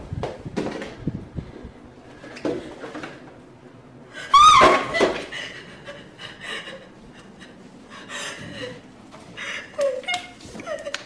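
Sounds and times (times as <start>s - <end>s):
woman sobbing: 4.2s - 8.8s
woman crying out: 4.3s - 5.1s.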